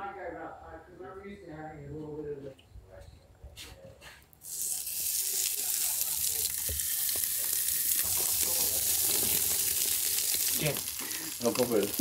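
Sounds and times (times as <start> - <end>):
fish sizzling on a grill: 4.4 - 12.0.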